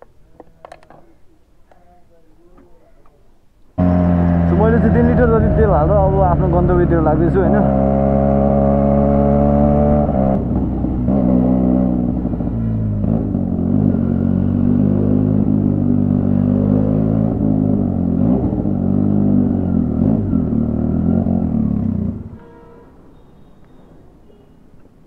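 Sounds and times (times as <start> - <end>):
motorcycle engine revving: 3.8 - 22.4.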